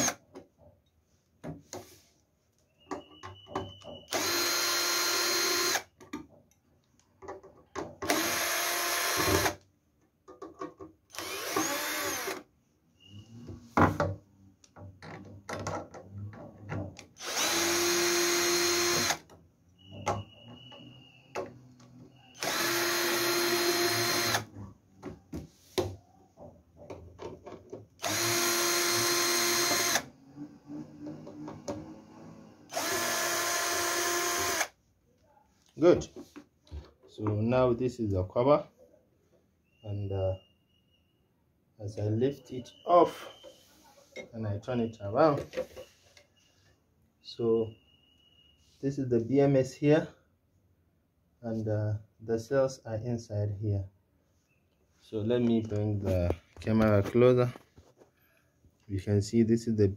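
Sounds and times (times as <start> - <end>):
cordless drill running: 4.1 - 5.9, 8.1 - 9.6, 11.1 - 12.4, 17.2 - 19.2, 22.4 - 24.5, 28.0 - 34.7.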